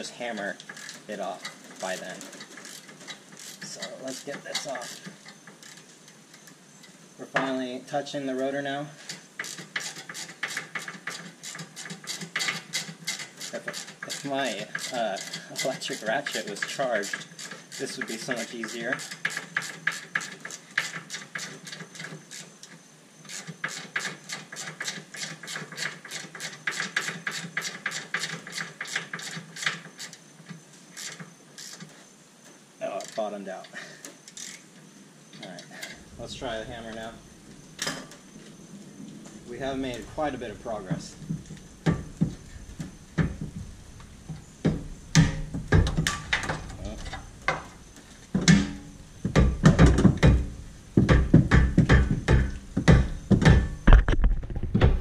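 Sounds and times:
metal rotor ringing: 0.0s - 6.8s, 9.4s - 22.5s.

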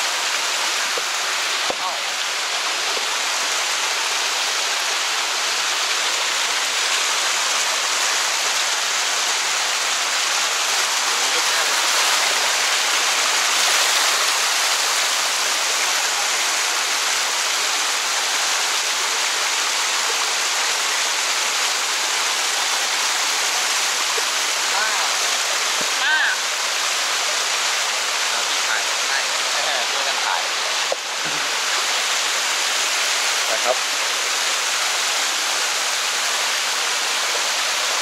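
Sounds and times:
waterfall rushing: 0.0s - 38.0s.

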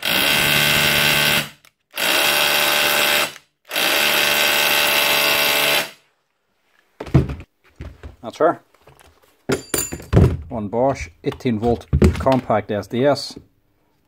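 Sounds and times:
rotary hammer drill running: 0.0s - 6.0s.

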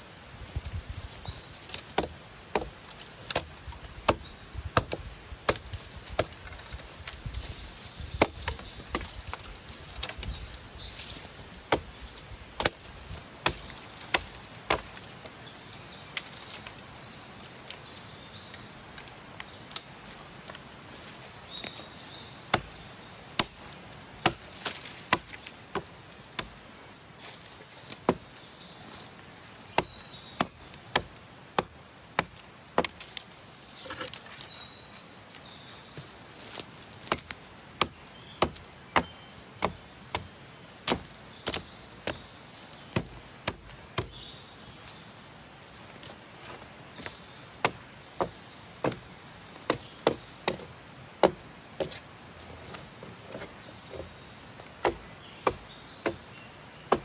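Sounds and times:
blade chopping into tree trunk: 1.7s - 6.4s, 12.6s - 15.0s, 37.0s - 42.2s, 54.8s - 56.2s.

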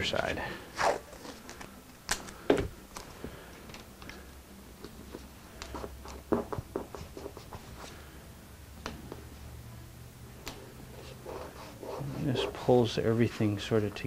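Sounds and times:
tape ticks and crackles: 1.2s - 4.2s, 4.8s - 6.6s.

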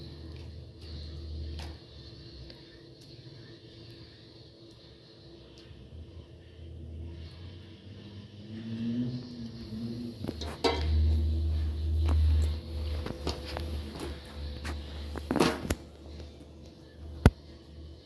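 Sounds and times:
metal ladle clinking on pot: 10.5s - 11.0s.

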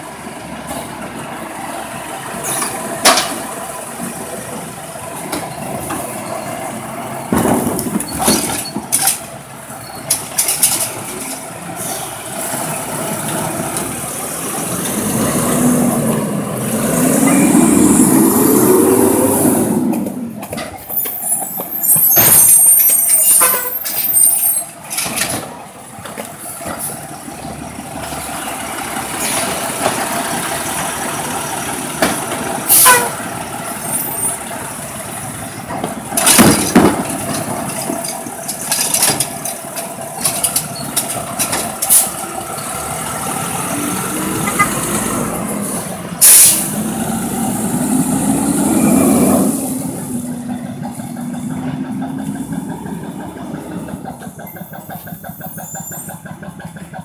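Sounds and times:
garbage truck clanking: 0.5s - 57.0s
truck engine running: 24.7s - 57.0s
air-brake hisses: 45.6s - 46.8s.

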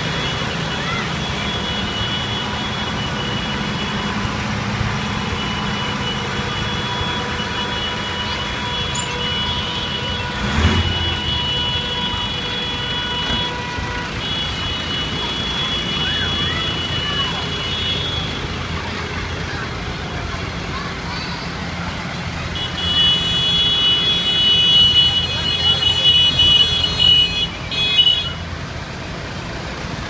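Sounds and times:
tractor diesel engines: 0.0s - 30.0s.

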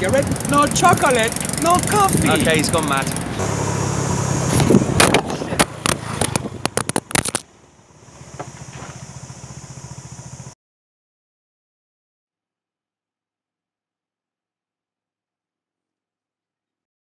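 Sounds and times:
engine running: 0.0s - 10.6s
crackling and scraping clicks: 4.5s - 7.5s.

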